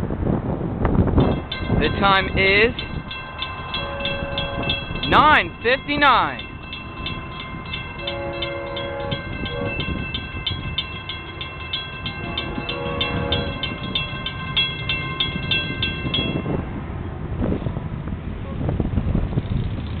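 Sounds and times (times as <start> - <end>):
crossing warning bell ringing: 1.1 - 16.8
distant train horn blasts: 1.2 - 16.4.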